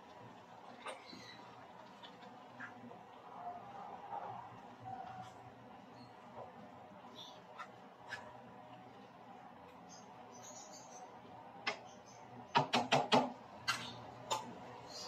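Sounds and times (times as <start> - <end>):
spatula stirring food in pan: 0.0 - 10.4.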